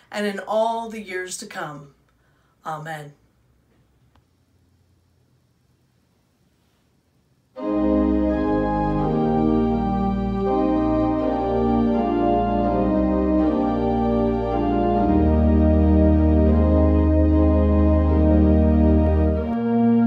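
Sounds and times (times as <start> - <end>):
church organ chords: 7.6 - 20.0.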